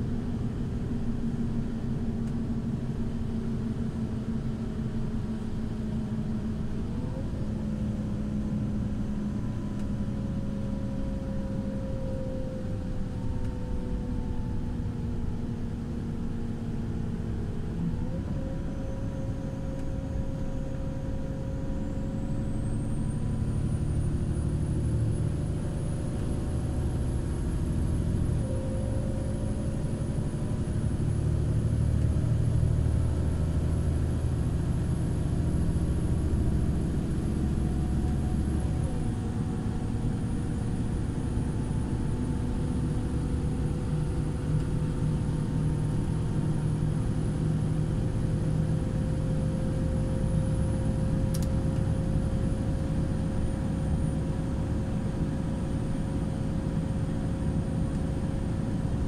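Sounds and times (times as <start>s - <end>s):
bus diesel engine drone: 0.0s - 59.0s
road rumble: 0.0s - 59.0s.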